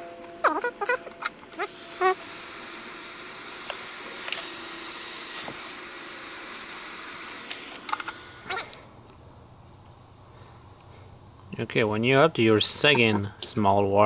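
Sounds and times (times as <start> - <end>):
heat gun blowing hiss and whine: 1.5 - 8.9.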